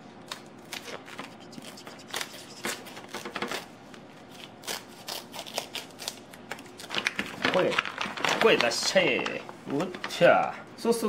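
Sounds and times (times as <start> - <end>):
plastic crinkling and crackling: 6.5 - 10.6.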